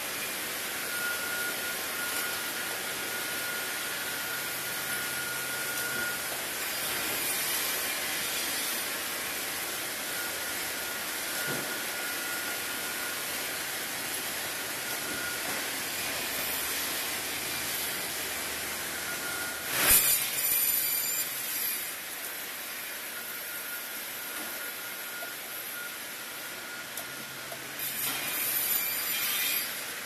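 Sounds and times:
machinery and roller conveyors running: 0.0s - 30.0s
faint whistle-like tone: 0.8s - 6.3s, 10.1s - 13.2s, 18.9s - 20.2s, 23.2s - 27.2s.

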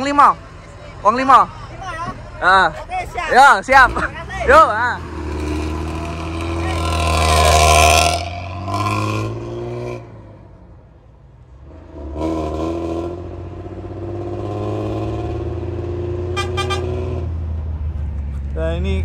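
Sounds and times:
diesel bus engine through loud exhaust: 0.0s - 19.0s
short high horn toots: 16.4s - 17.0s.

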